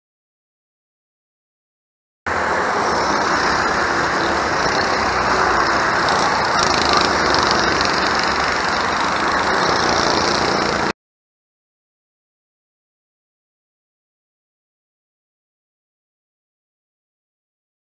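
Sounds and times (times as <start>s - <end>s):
go-kart engines: 2.3s - 11.0s.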